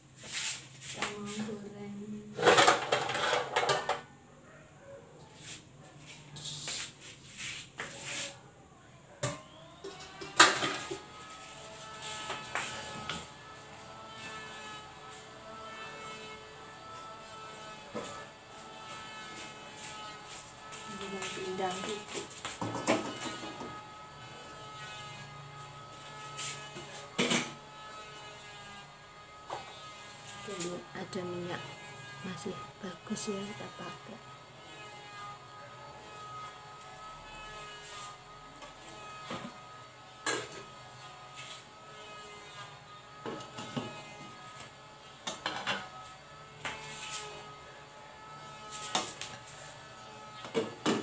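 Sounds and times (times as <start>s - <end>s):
cookware knocking and rustling: 2.4s - 4.1s.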